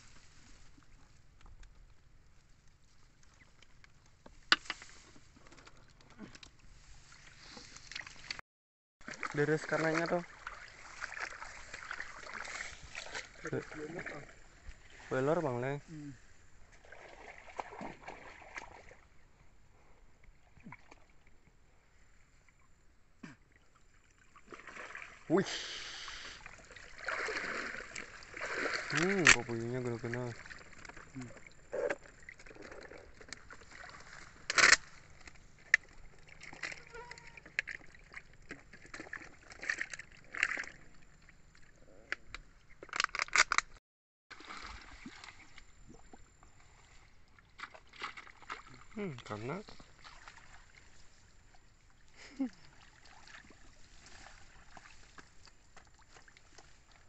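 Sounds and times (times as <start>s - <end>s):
muddy water sloshing: 0.0s - 8.4s, 9.0s - 19.4s, 22.5s - 43.6s, 44.3s - 57.0s
small clicks and splashes: 0.2s - 8.4s, 9.0s - 14.9s, 16.7s - 19.0s, 26.4s - 43.8s, 47.3s - 57.0s.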